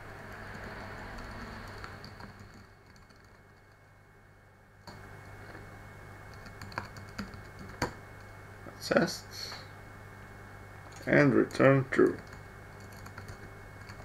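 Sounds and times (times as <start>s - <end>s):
typing on computer keyboard: 0.3s - 3.8s, 6.3s - 8.0s, 12.0s - 14.0s.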